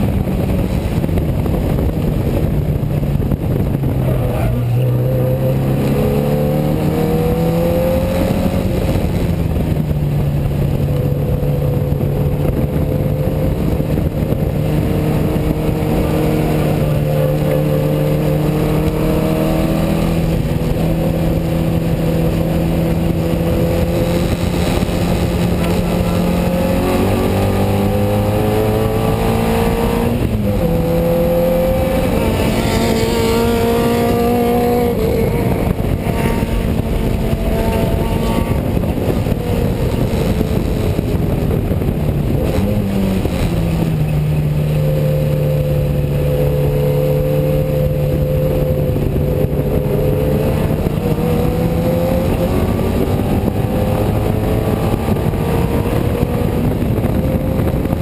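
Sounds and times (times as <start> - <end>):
gear change: 0.0 - 58.0
race car engine: 0.0 - 58.0
road and wind noise: 0.0 - 58.0.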